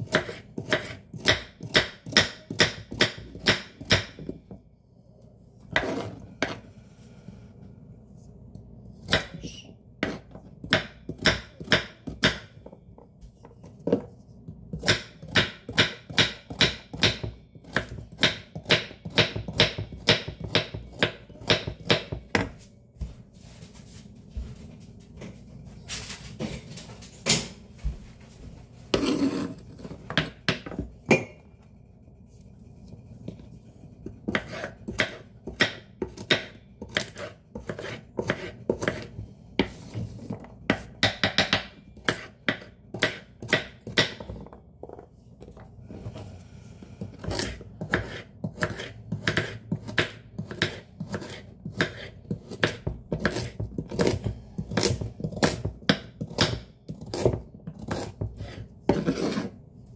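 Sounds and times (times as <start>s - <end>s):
knife chopping on wooden board: 0.0s - 4.4s, 10.0s - 12.7s, 14.7s - 22.6s, 34.0s - 45.0s, 47.1s - 59.5s.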